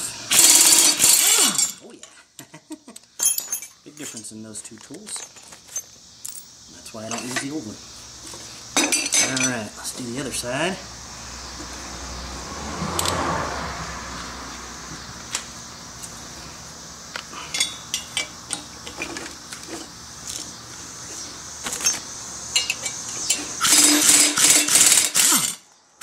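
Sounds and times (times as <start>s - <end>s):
metal tools and bolts clinking: 0.3s - 2.2s, 3.0s - 7.6s, 8.8s - 10.0s, 17.5s - 20.5s, 21.6s - 25.7s.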